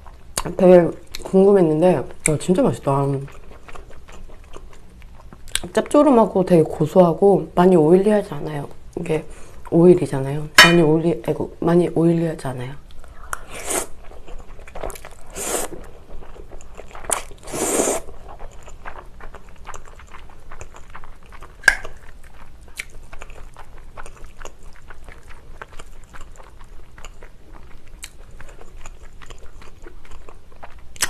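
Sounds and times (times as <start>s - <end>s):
wet chewing with small clicks: 0.0s - 6.1s, 12.8s - 31.0s
noodles slurping: 13.4s - 26.6s.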